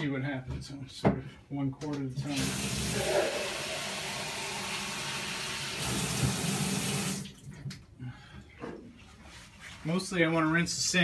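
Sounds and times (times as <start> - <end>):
water splashing into washer drum: 3.6 - 7.7.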